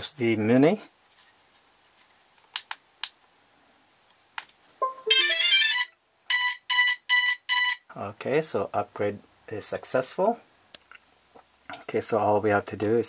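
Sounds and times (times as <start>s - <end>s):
same-pitched beeps: 4.8s - 5.5s
electronic alert tones: 4.8s - 5.9s.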